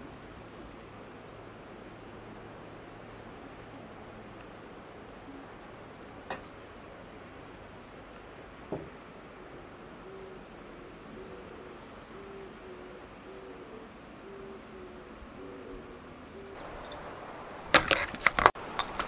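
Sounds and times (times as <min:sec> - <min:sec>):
distant bird hooting: 0:00.0 - 0:18.5
small bird chirping: 0:06.9 - 0:18.6
soft knock: 0:08.7 - 0:09.0.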